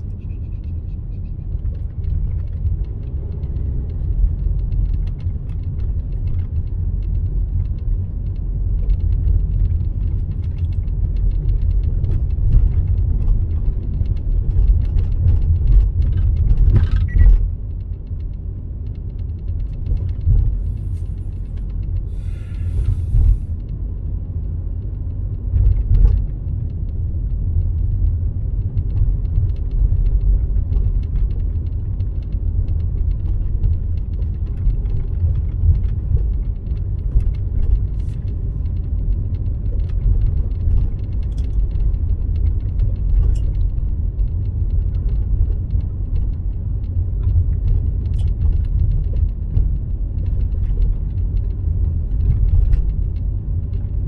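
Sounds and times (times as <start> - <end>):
car driving rumble: 0.0 - 54.0
short hiss: 22.2 - 23.4.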